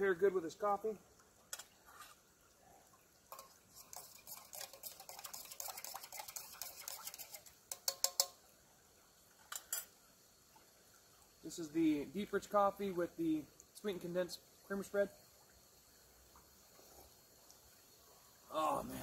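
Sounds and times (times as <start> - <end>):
utensil scraping a metal cup: 3.3 - 8.3.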